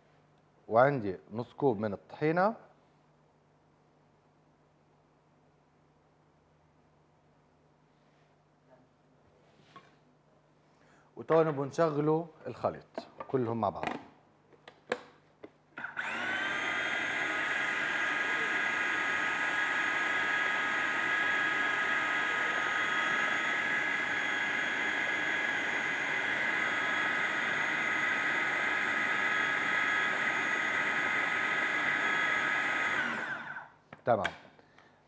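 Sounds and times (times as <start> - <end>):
food processor motor running: 15.8 - 33.7.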